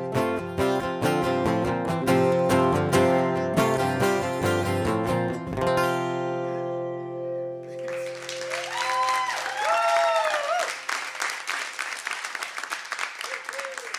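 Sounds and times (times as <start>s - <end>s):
acoustic guitar strumming: 0.0s - 8.5s
audience applauding and cheering: 7.6s - 13.9s.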